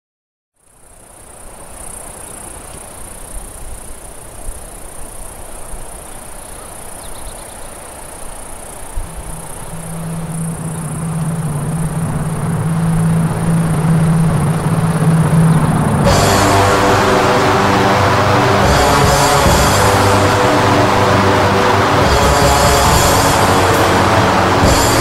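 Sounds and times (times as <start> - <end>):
high insect-like chirring: 0.6 - 16.0
rushing wind-like hiss: 0.7 - 16.3
low held musical note: 9.2 - 25.0.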